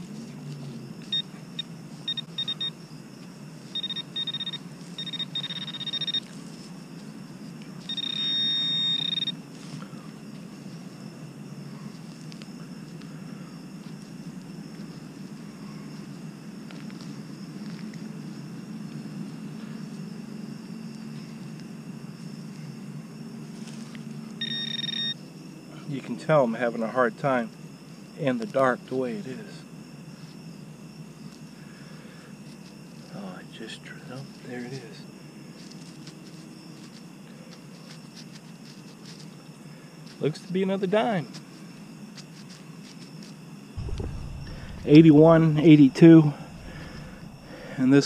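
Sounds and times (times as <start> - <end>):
metal detector beeping: 1.0 - 2.8, 3.7 - 6.3, 7.8 - 9.4, 24.4 - 25.2
steady low hum: 43.6 - 48.0.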